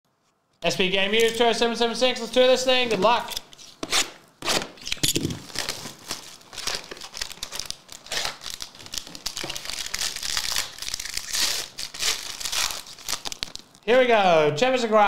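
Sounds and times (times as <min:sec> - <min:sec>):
plastic wrap crinkling and tearing: 0:04.5 - 0:13.9.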